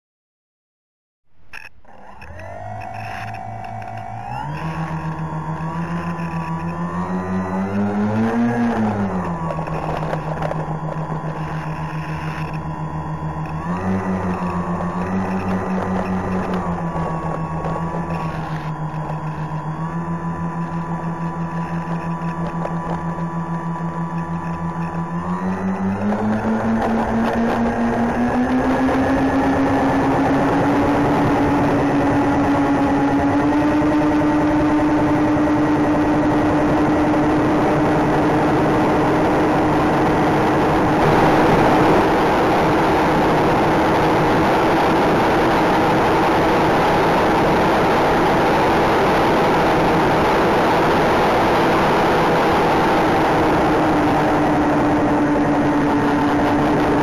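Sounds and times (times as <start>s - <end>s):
electric motors whining: 1.5s - 57.0s
airflow noise: 35.6s - 57.0s.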